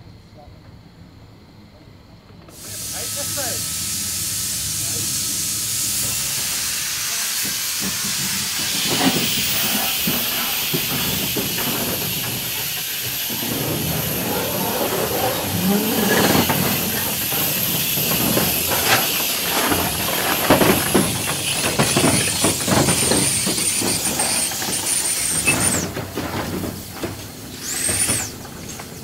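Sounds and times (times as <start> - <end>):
locomotive wheels clanking on rails: 2.3 - 29.0
steam hissing: 2.5 - 29.0.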